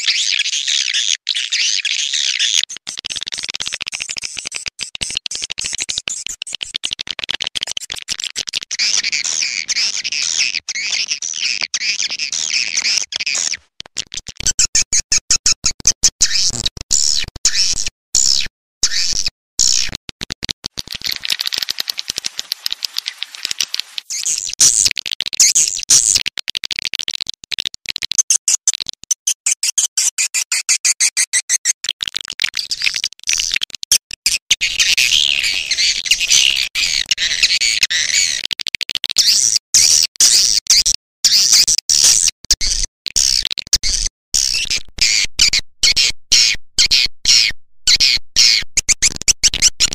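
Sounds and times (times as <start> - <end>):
swiftlet twittering and clicking: 2.7 - 13.6, 20.6 - 26.2.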